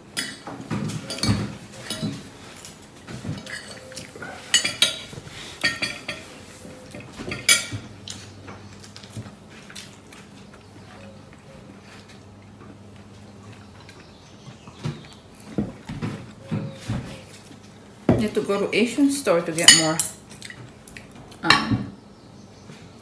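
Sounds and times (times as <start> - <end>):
cutlery clinking on a plate: 0.2 - 7.8.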